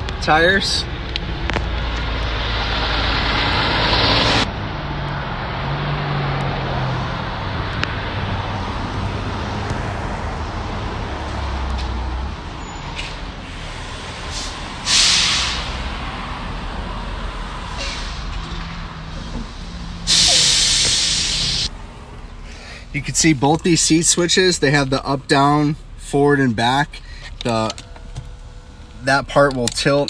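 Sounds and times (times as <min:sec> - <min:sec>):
road traffic passing: 0:00.0 - 0:30.0
short loud hiss: 0:14.3 - 0:15.7, 0:20.1 - 0:21.7.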